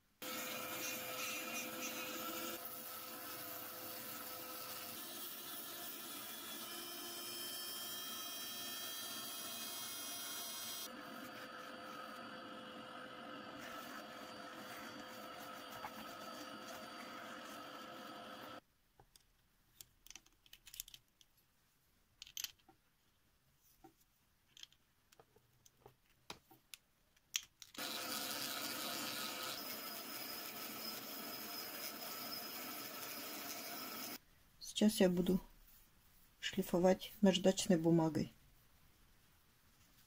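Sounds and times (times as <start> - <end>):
rotary engraver whining: 0.2 - 18.6, 27.8 - 34.2.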